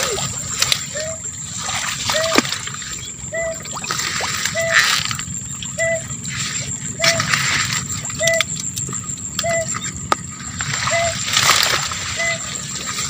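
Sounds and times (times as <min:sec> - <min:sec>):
water splashing: 0:00.0 - 0:05.8, 0:10.6 - 0:13.0
faint high whine: 0:00.0 - 0:13.0
short steady-pitched call: 0:04.3 - 0:08.6, 0:09.3 - 0:09.9.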